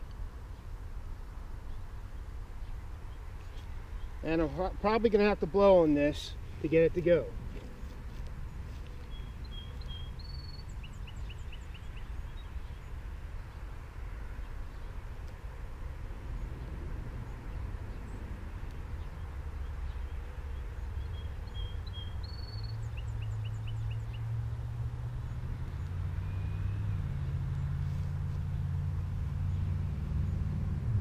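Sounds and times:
low steady rumble: 0.0 - 31.0
small bird chirping: 7.6 - 13.6, 18.9 - 24.3.

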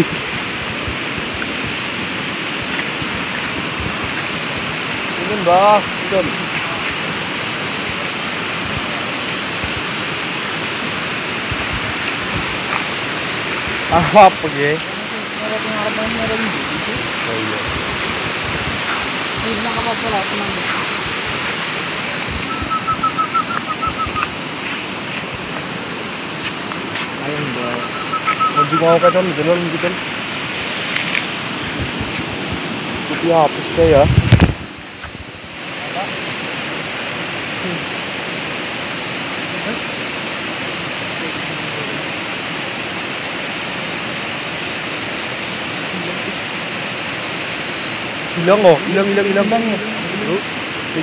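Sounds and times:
river water rushing: 0.0 - 49.3
quick high chirps: 22.4 - 24.8, 27.8 - 29.3.

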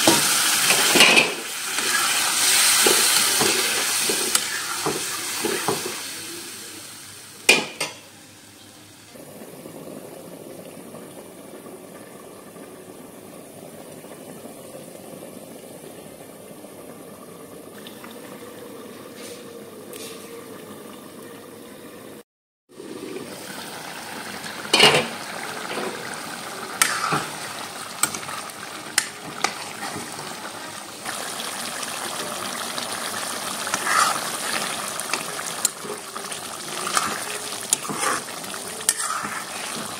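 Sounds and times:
curry bubbling and sizzling: 22.7 - 39.9.

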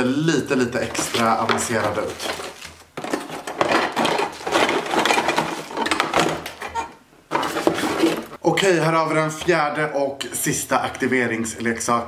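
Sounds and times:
cardboard and plastic wrap rustling: 0.2 - 8.4
hard plastic parts clattering: 0.6 - 8.4.

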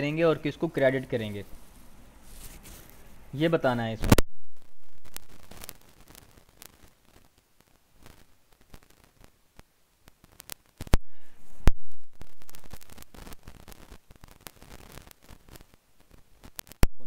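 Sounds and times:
static hiss and crackle: 0.0 - 17.0.

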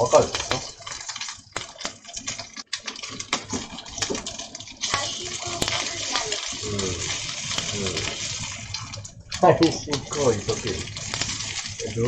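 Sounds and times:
meat sizzling in a skillet: 4.1 - 12.0.

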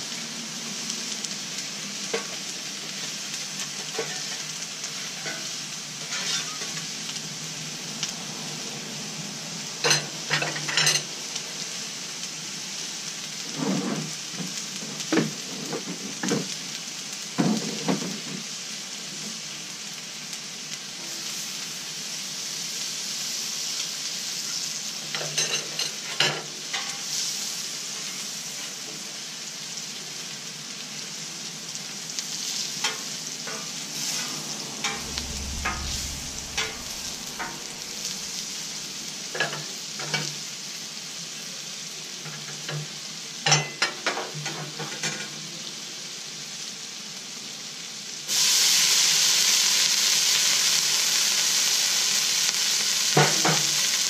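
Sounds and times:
food sizzling on griddle: 0.0 - 54.0
metal spatula scraping griddle: 3.6 - 6.9, 13.5 - 14.1, 32.7 - 40.2.

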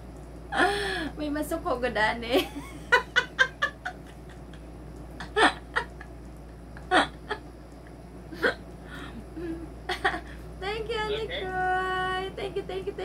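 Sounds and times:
woman laughing: 2.4 - 6.2, 6.8 - 7.4, 9.3 - 10.4.

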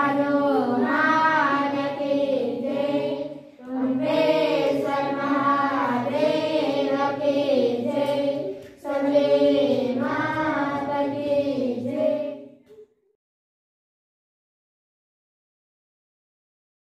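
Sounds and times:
girls singing together: 0.0 - 12.8.

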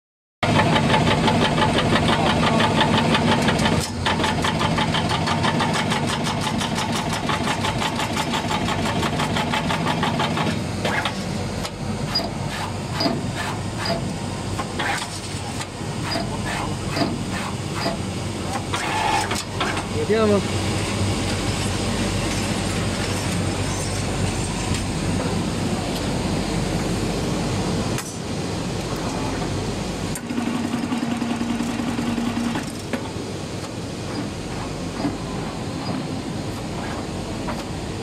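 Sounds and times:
machine clicks and whirs: 0.4 - 19.9, 28.0 - 37.8.

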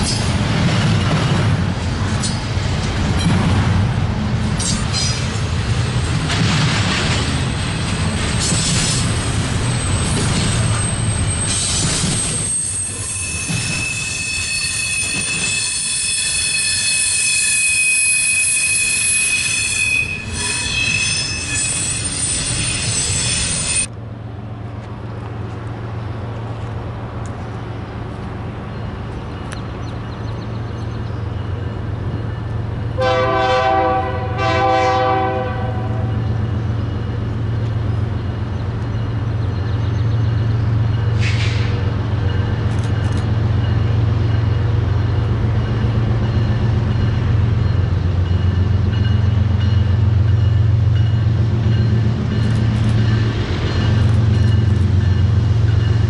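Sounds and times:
container train rolling past: 0.0 - 56.0
locomotive humming: 0.0 - 56.0
train wheels squealing: 7.6 - 23.9, 36.1 - 56.0
train horn: 33.0 - 36.1.

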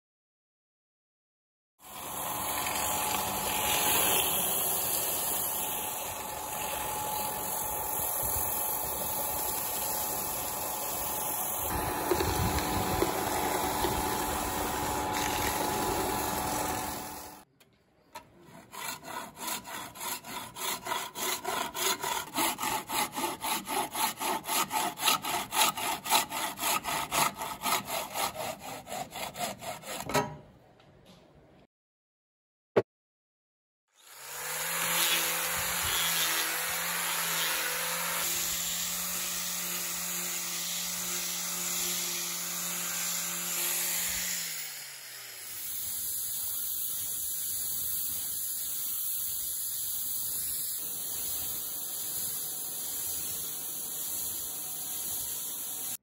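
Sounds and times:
bowl sanded on spinning lathe: 1.8 - 17.4, 18.5 - 30.0, 34.2 - 56.0
wood pulsing scrape on abrasive: 2.3 - 17.4, 18.2 - 30.2, 34.4 - 44.8.

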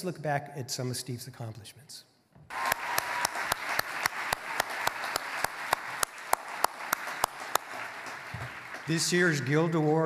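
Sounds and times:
audience applause: 2.5 - 10.0
person clapping close to microphone: 2.5 - 10.0.

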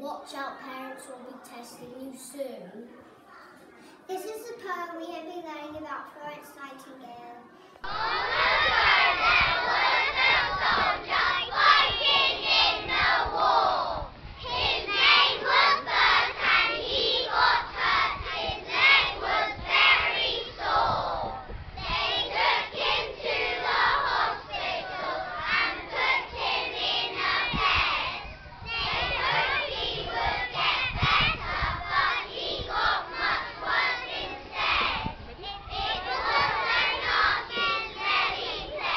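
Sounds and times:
children chanting in unison: 7.8 - 38.9.

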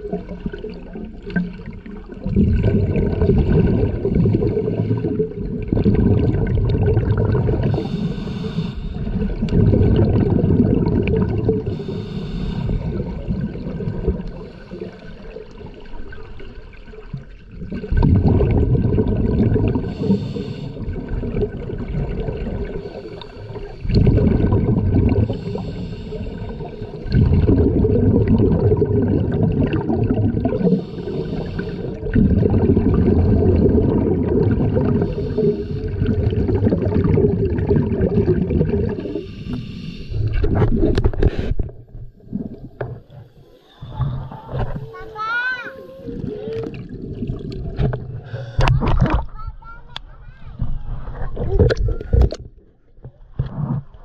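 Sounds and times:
bubbles rumbling on exhale: 0.0 - 8.2, 8.9 - 45.0, 46.0 - 49.3
regulator hiss on inhale: 7.7 - 9.1, 11.7 - 13.0, 19.9 - 20.8, 22.8 - 23.9, 25.3 - 27.0, 30.6 - 32.0, 35.0 - 36.1, 39.0 - 40.5
sharp clicks underwater: 9.4 - 10.3, 40.2 - 43.2, 47.4 - 50.1, 51.3 - 54.0.

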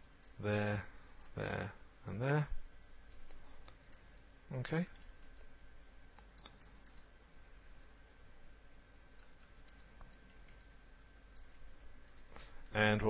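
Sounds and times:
faint computer mouse clicks: 3.1 - 4.3, 6.1 - 7.1, 9.2 - 10.7.

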